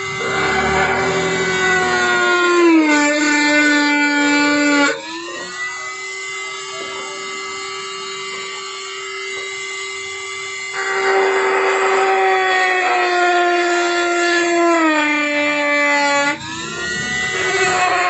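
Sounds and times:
rotary tool grinding plastic: 0:16.1 - 0:18.0.

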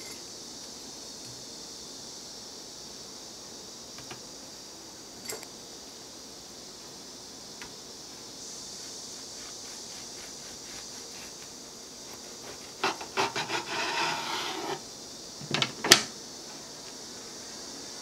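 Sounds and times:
knife sawing through bread: 0:09.4 - 0:11.4, 0:12.1 - 0:14.8.

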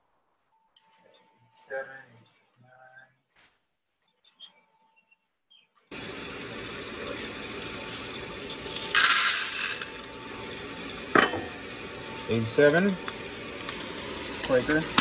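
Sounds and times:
coffee beans rattling pour: 0:06.6 - 0:10.2.

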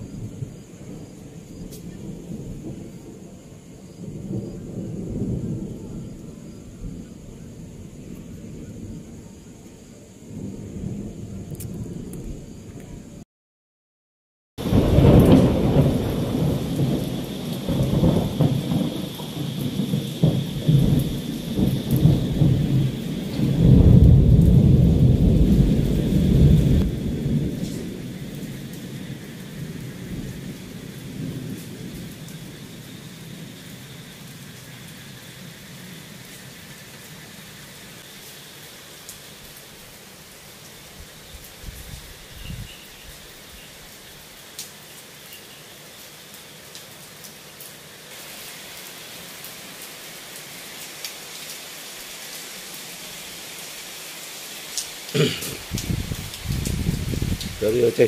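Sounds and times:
rain hissing: 0:00.0 - 0:13.2, 0:14.6 - 0:58.0
thunder rumbling: 0:00.0 - 0:13.2, 0:14.6 - 0:34.2, 0:55.2 - 0:58.0.

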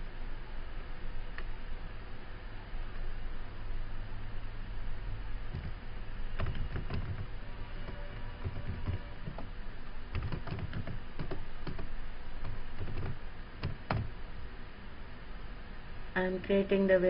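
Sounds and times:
steady low hum: 0:00.0 - 0:17.0
keyboard typing: 0:05.5 - 0:05.8, 0:06.4 - 0:09.5, 0:10.1 - 0:14.1.

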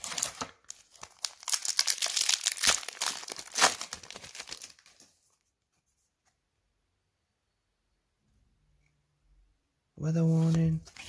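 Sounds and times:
foil wrapper crinkling: 0:00.0 - 0:05.1.

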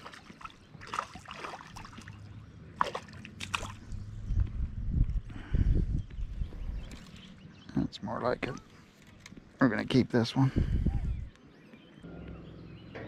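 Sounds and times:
fish splashing in water: 0:00.0 - 0:04.0
low rumbling noise: 0:12.0 - 0:13.0.

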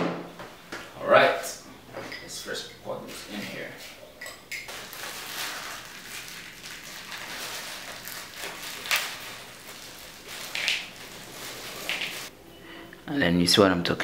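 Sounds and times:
nuts pattering into a bowl: 0:04.7 - 0:12.3
plastic sachet crinkling: 0:04.7 - 0:12.3.

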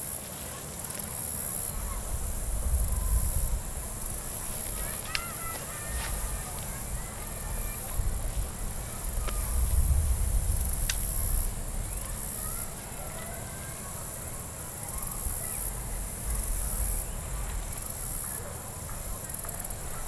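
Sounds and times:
high insect buzz: 0:00.0 - 0:20.0
wind on microphone: 0:01.7 - 0:12.8, 0:15.0 - 0:18.3.

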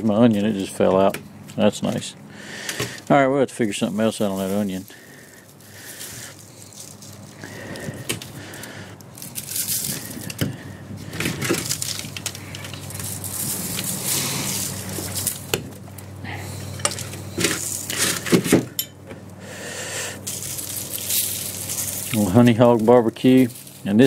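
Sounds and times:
rustling against foil tray: 0:02.9 - 0:15.8, 0:20.2 - 0:24.0.

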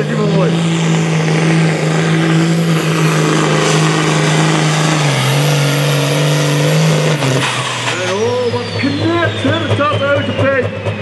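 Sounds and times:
tractor diesel engine under full load: 0:00.0 - 0:11.0.

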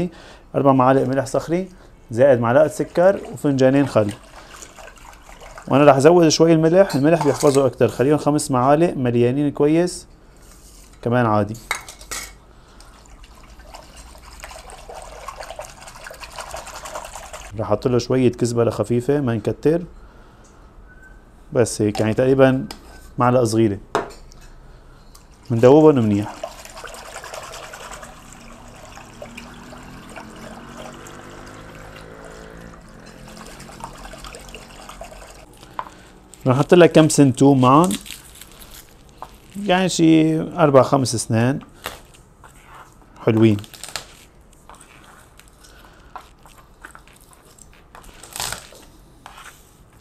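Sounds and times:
liquid swishing and sloshing: 0:02.3 - 0:07.6, 0:12.8 - 0:17.6, 0:25.2 - 0:36.4
papery garlic skin rustling: 0:35.5 - 0:39.7, 0:43.2 - 0:48.9.

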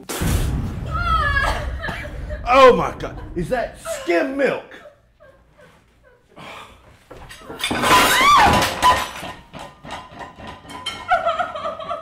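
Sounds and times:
dishes crashing and clattering: 0:07.1 - 0:12.0
clinks and knocks: 0:07.2 - 0:11.5.

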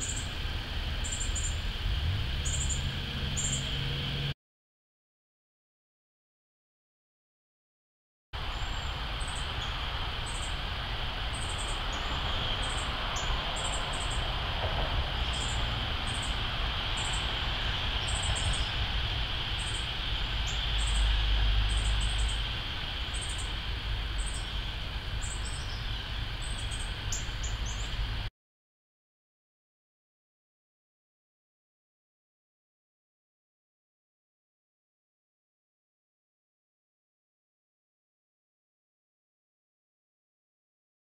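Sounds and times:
low rumble: 0:00.0 - 0:04.3
steady hiss: 0:08.4 - 0:28.3.

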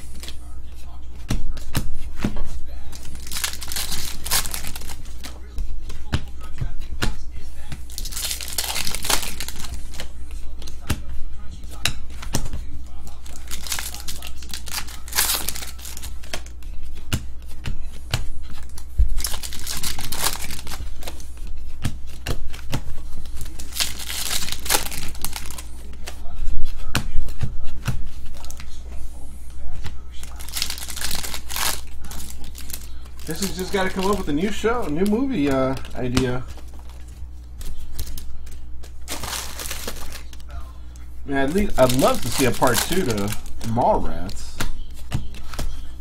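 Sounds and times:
wrappers crinkling and tearing: 0:02.9 - 0:05.3, 0:07.9 - 0:10.1, 0:13.1 - 0:16.6, 0:18.6 - 0:21.3, 0:23.2 - 0:25.7, 0:30.2 - 0:40.5, 0:41.3 - 0:44.6.

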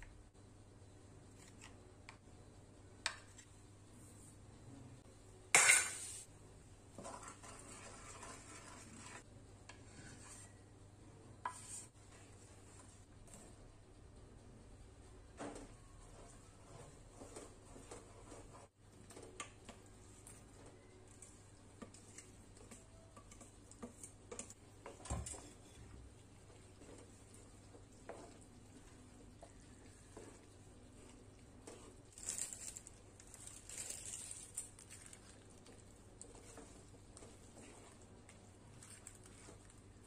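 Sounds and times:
spatula stirring thick sauce: 0:07.0 - 0:10.6, 0:16.0 - 0:33.4, 0:34.6 - 0:40.0.

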